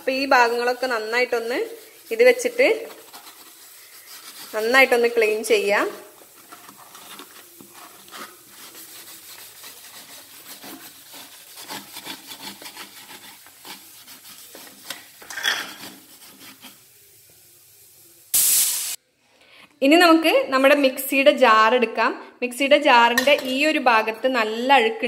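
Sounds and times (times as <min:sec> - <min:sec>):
scrubber pad scouring plastic: 0:00.1 - 0:16.8
loud burst of hiss: 0:17.0 - 0:19.0.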